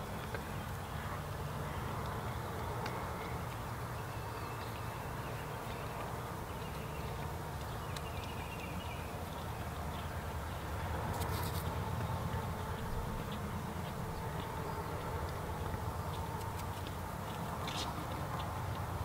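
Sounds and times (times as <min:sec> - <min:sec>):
steady low rumble: 0:05.5 - 0:19.0.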